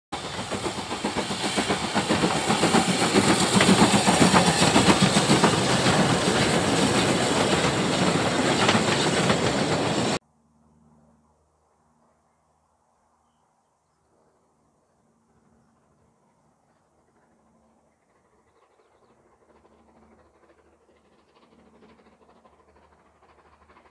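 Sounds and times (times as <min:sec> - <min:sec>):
steam train exhaust and wheel clatter: 0:00.1 - 0:10.2, 0:15.0 - 0:23.9
steam hiss: 0:00.2 - 0:10.2.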